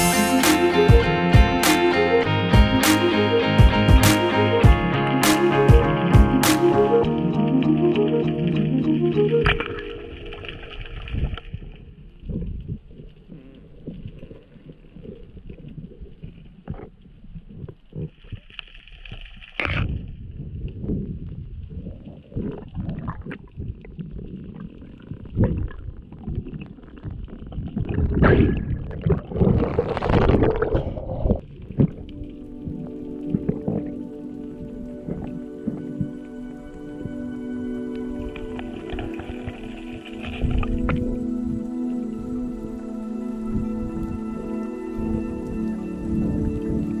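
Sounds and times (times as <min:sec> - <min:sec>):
water rushing bursts: 0:00.0 - 0:03.0
muffled underwater water noise: 0:06.9 - 0:47.0.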